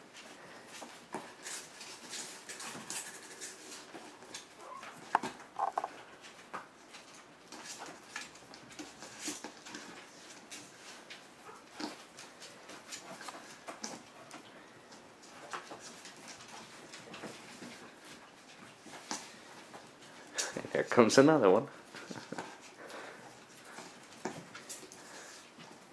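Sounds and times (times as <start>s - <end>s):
puppy paws scratching on cardboard: 0.1s - 20.3s
high puppy squeaks: 4.6s - 5.9s.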